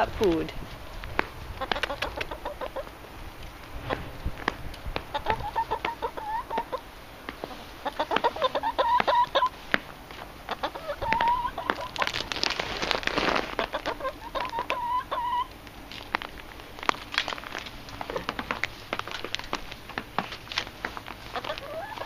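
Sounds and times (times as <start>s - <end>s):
hens clucking: 1.2s - 17.2s, 17.9s - 22.0s.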